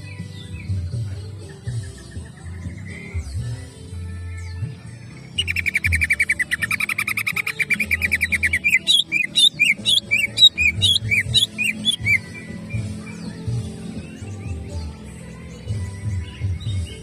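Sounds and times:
bird singing trills and whistles: 0:04.4 - 0:17.0.

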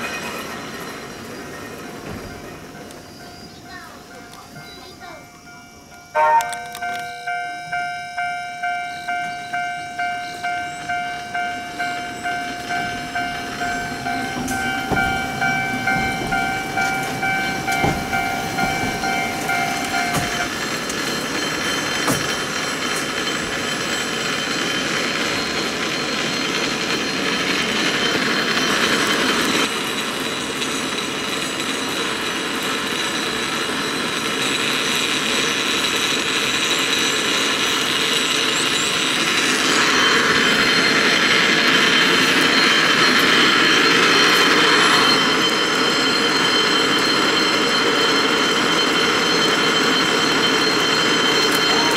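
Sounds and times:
funicular car rumbling: 0:00.0 - 0:51.9
level crossing bell ringing: 0:03.7 - 0:29.4, 0:39.8 - 0:51.9.

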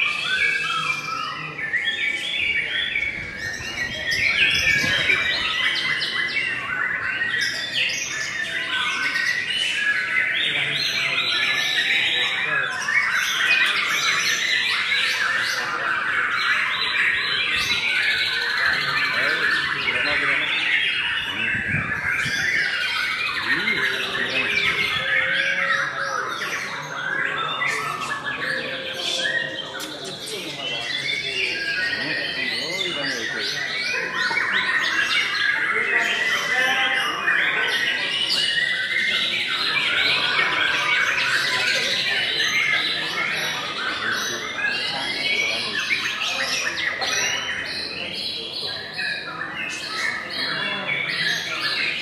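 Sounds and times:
bird singing whistles and chirps: 0:00.0 - 0:52.0
bird singing whistled notes: 0:16.4 - 0:40.4.

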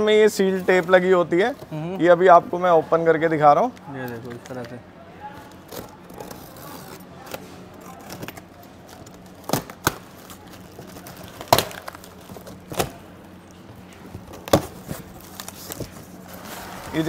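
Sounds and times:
cardboard and tape cracking: 0:05.4 - 0:17.0.

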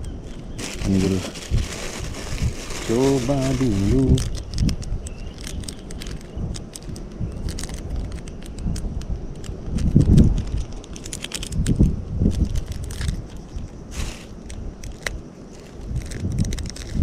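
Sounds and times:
plastic packet crackling: 0:00.3 - 0:09.5, 0:14.0 - 0:17.0.

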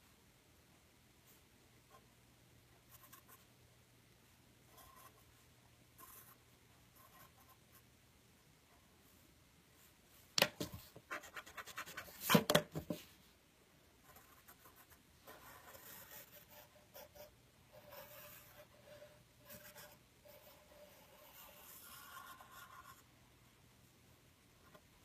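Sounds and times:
pencil scratching on paper: 0:04.7 - 0:05.3, 0:06.0 - 0:06.4, 0:11.0 - 0:12.9, 0:14.0 - 0:23.1.

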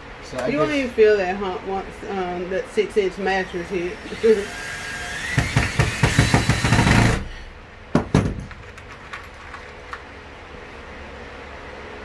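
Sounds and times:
cordless drill driving screw: 0:04.0 - 0:07.3.

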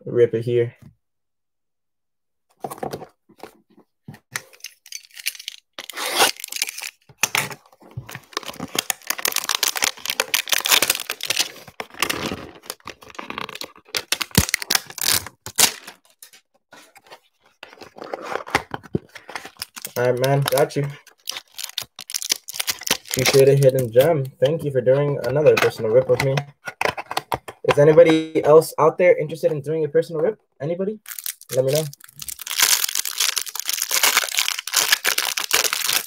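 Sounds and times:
plastic wrap tearing and crinkling: 0:04.7 - 0:16.3, 0:19.4 - 0:24.3, 0:31.1 - 0:36.0.

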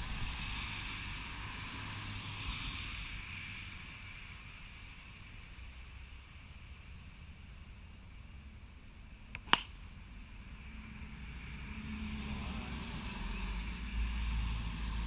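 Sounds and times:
low steady hum: 0:00.0 - 0:15.0
golf club striking ball: 0:09.4 - 0:10.0.

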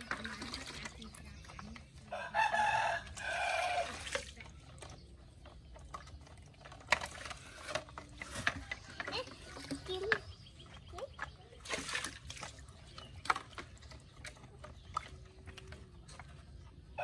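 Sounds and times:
plastic toy trucks clicking: 0:04.5 - 0:10.3.

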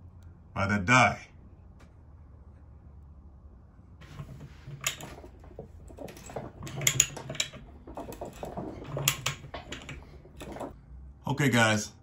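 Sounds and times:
pipe threader clicking and scraping: 0:04.0 - 0:10.8.

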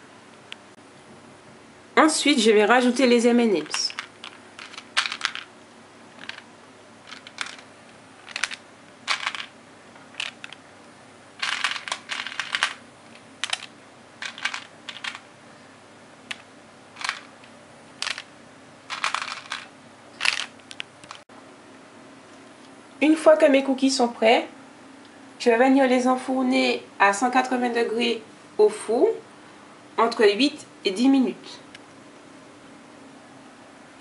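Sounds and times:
candies clicking and rattling: 0:03.6 - 0:05.5, 0:06.2 - 0:09.5, 0:10.1 - 0:10.6, 0:11.4 - 0:15.3, 0:16.3 - 0:17.3, 0:18.0 - 0:18.3, 0:18.9 - 0:21.2.

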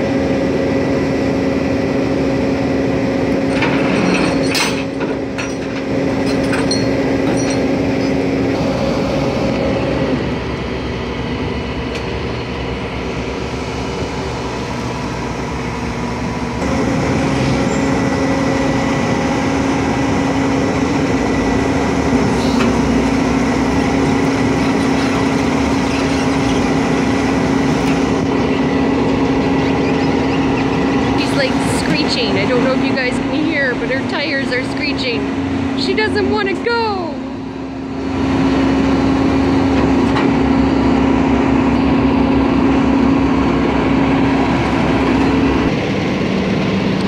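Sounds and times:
truck engine and hydraulic winch: 0:00.0 - 0:36.2.

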